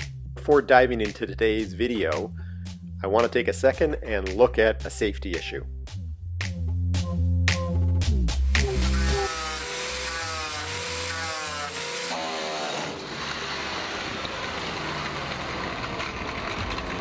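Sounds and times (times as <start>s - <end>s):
angle grinder sanding metal: 8.5s - 15.5s.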